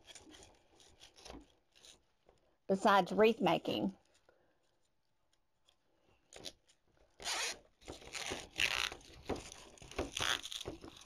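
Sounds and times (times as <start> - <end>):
zip tie zipping through lock: 7.2 - 9.1, 10.1 - 10.7.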